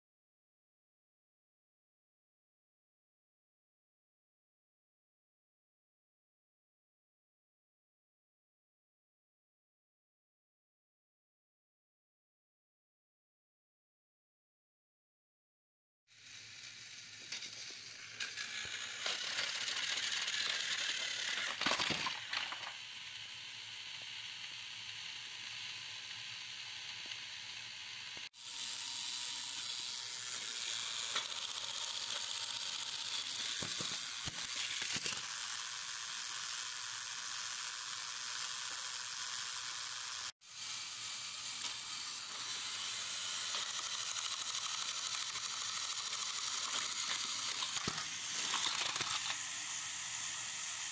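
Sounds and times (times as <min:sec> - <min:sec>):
toy train motor whirring: 0:16.1 - 0:50.9
wheels rattling on plastic track: 0:16.2 - 0:28.2, 0:30.4 - 0:39.9, 0:41.6 - 0:50.9.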